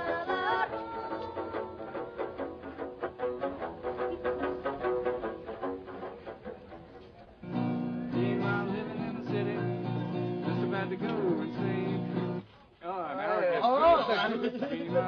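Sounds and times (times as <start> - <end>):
acoustic guitar playing: 0.0 - 12.5.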